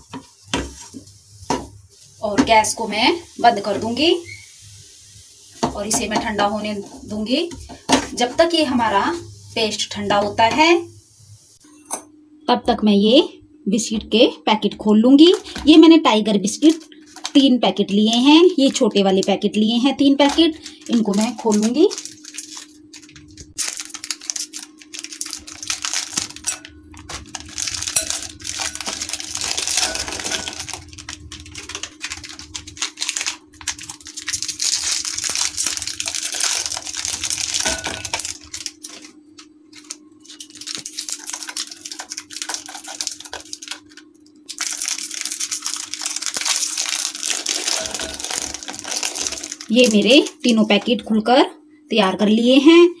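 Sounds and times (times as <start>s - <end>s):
steady low hum: 0.0s - 53.0s
plastic wrappers crinkling and tearing: 16.5s - 19.5s, 20.2s - 50.4s
biscuits clattering into glass bowl: 44.9s - 49.6s.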